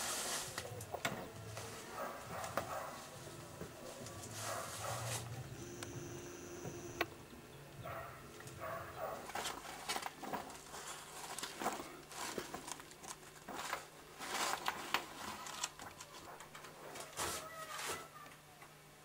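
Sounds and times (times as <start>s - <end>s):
low steady hum: 0.7s - 13.2s
newspaper pages rustling: 3.8s - 5.4s, 9.2s - 18.1s.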